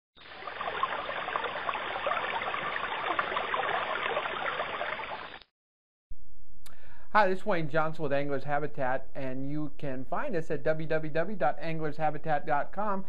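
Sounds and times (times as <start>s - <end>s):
stream babbling and trickling: 0.2s - 5.5s.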